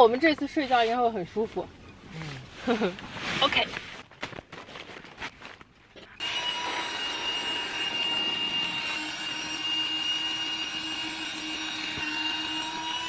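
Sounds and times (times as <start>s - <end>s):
electric air pump motor whine: 6.2s - 13.0s.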